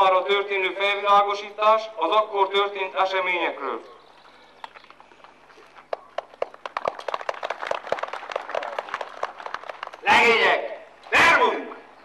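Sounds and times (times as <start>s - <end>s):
crowd applauding: 5.2s - 10.3s.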